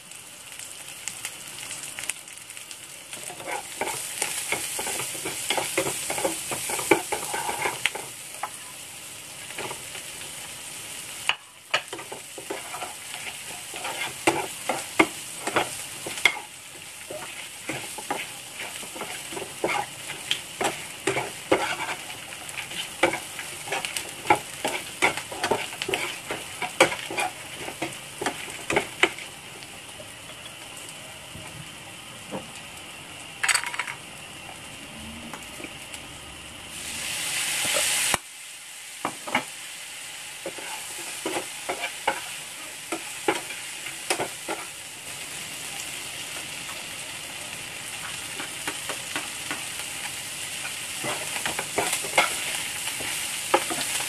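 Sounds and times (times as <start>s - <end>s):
food sizzling in hot oil: 0.0s - 54.0s
spatula clacking and scraping pan: 3.2s - 8.1s, 11.7s - 29.2s, 40.4s - 44.7s, 50.6s - 54.0s.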